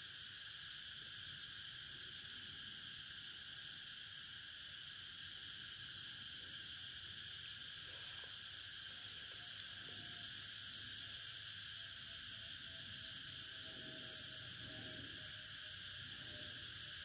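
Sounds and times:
insect chorus droning: 0:00.0 - 0:17.0.

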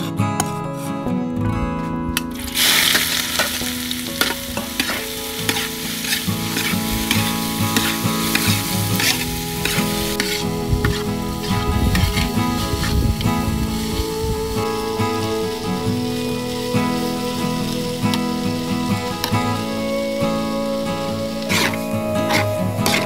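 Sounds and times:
ginger sizzling in hot oil: 0:02.3 - 0:23.0
metal spatula scraping wok: 0:02.4 - 0:11.0, 0:21.5 - 0:23.0.

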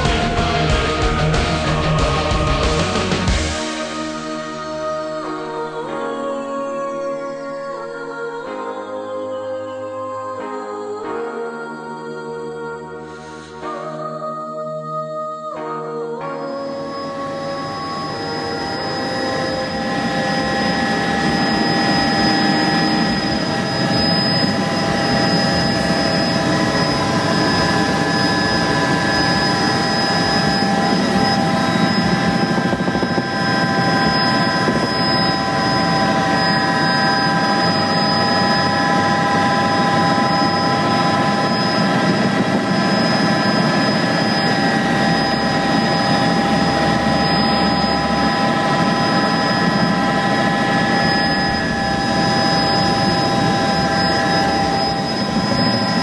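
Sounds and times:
helicopter turbine whine: 0:16.3 - 0:56.0
rotor and airflow rushing: 0:17.5 - 0:56.0.

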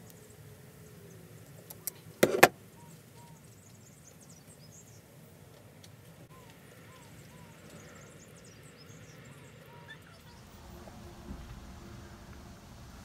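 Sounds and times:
faint bird chirps: 0:00.0 - 0:05.0, 0:06.3 - 0:10.5
sharp metal knocks: 0:02.2 - 0:02.5.

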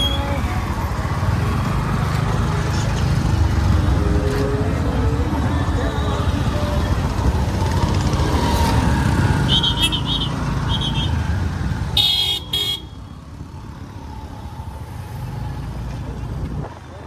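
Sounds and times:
motorcycle engine rumble: 0:00.0 - 0:17.0
vehicle horns beeping: 0:09.4 - 0:11.3, 0:12.0 - 0:13.1.

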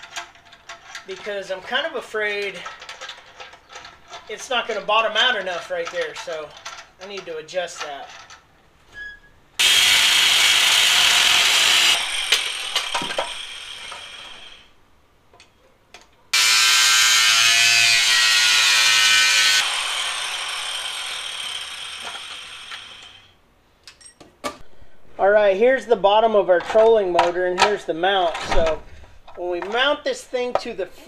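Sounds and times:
angle grinder cutting aluminum: 0:09.6 - 0:14.7, 0:16.4 - 0:23.4
grinder disc winding down: 0:09.6 - 0:14.7, 0:16.4 - 0:23.3.

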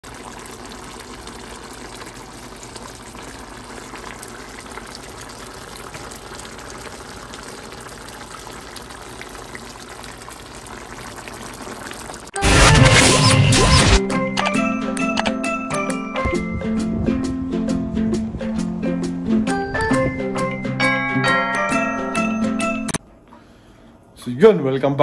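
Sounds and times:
stew bubbling in a pot: 0:00.0 - 0:12.4
loud music: 0:12.4 - 0:23.0.

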